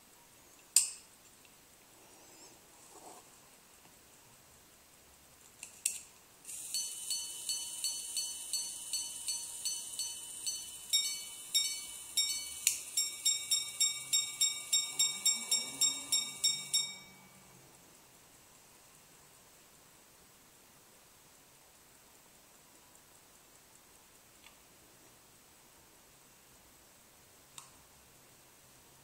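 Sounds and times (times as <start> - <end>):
repeater click: 6.5 - 14.8
pocket watch gongs striking: 6.8 - 17.4.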